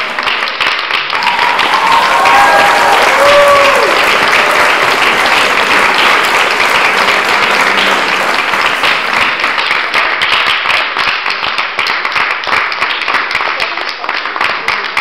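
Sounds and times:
audience applauding: 0.0s - 15.0s.

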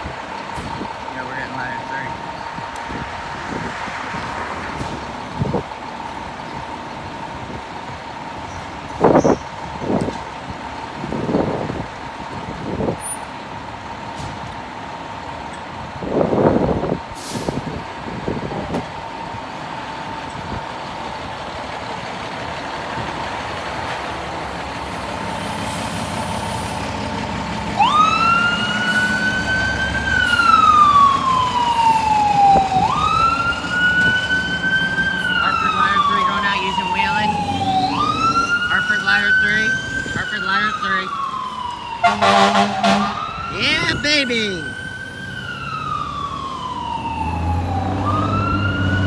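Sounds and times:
diesel truck engine running: 0.0s - 49.0s
siren wailing: 27.4s - 49.0s.

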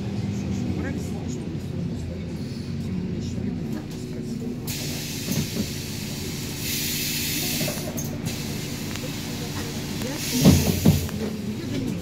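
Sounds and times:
bus engine humming: 0.0s - 12.0s
compressed air hiss: 4.7s - 9.4s.

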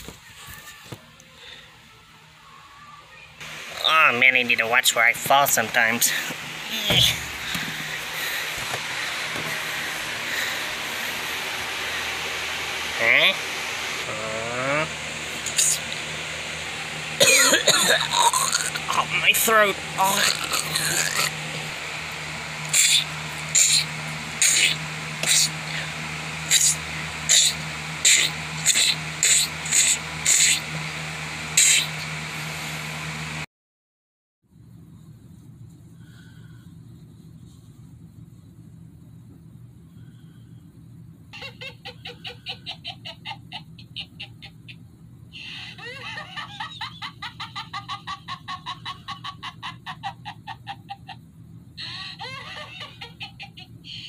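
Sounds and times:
steady low hum: 1.1s - 33.5s, 34.5s - 54.0s
high-pitched cackling laugh: 20.0s - 21.4s, 22.7s - 25.9s, 26.5s - 30.6s, 41.3s - 44.8s, 45.4s - 51.2s, 51.8s - 54.0s
short sharp hissing rasps: 22.6s - 30.7s, 31.6s - 32.1s.

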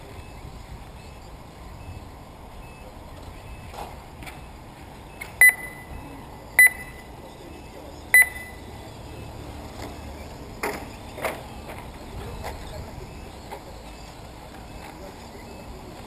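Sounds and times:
steady background noise: 0.0s - 16.0s
short high electronic beeps: 5.1s - 7.1s, 8.0s - 9.3s.

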